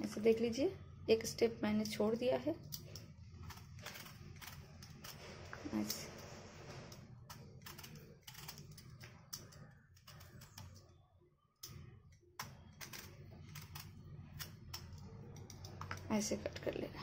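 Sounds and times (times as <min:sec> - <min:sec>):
peeler scraping gourd skin: 0:02.7 - 0:10.8, 0:12.4 - 0:16.2.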